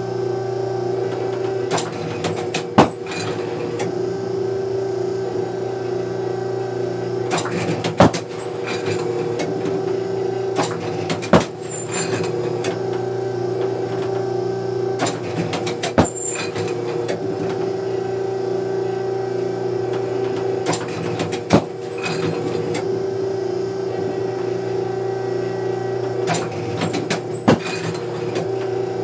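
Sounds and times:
motor hum: 0:00.0 - 0:29.0
loud mechanical clack: 0:01.1 - 0:03.9, 0:07.3 - 0:09.8, 0:10.5 - 0:13.0, 0:15.0 - 0:17.6, 0:19.9 - 0:22.8, 0:26.2 - 0:28.5.

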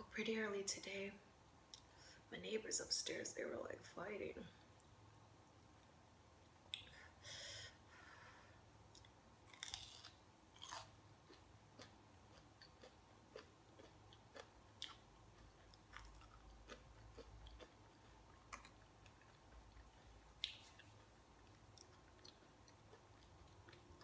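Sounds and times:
soft mouth clicks: 0:06.7 - 0:07.0
chewing crunches: 0:08.9 - 0:24.0.

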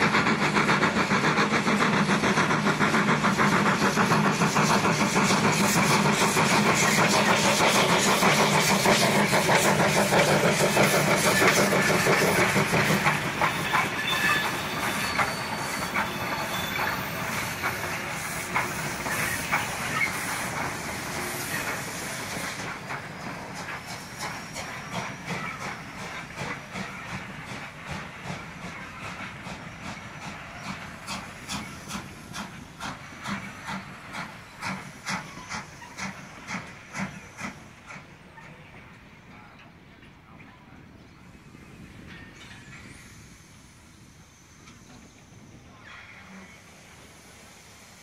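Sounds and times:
steam hissing: 0:00.0 - 0:39.5, 0:41.1 - 0:48.0
steam locomotive exhaust chuffs: 0:00.0 - 0:40.3, 0:41.2 - 0:48.0
wheels clicking on rail: 0:00.0 - 0:40.6.

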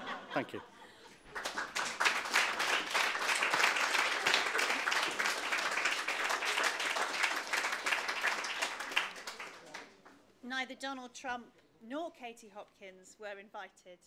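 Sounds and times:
audience applauding: 0:01.3 - 0:10.0.

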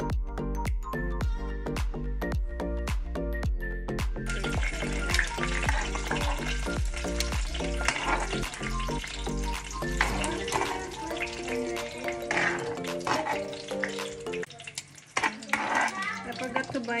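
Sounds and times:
background music with steady beat: 0:00.0 - 0:14.5
tongs and knife scraping a plate: 0:12.1 - 0:14.0, 0:15.2 - 0:16.5.

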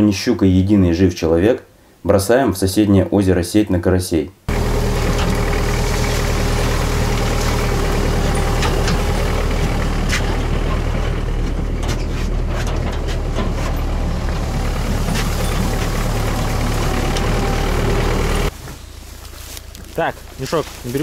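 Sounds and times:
knocks and rattles: 0:04.5 - 0:18.8
tractor diesel engine running: 0:04.5 - 0:21.0.

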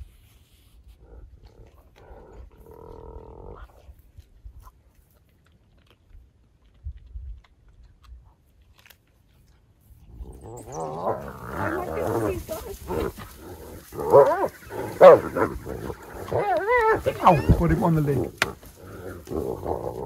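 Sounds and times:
animals chewing and crunching: 0:00.0 - 0:20.0
dog whining call: 0:10.3 - 0:13.2, 0:14.0 - 0:18.6.

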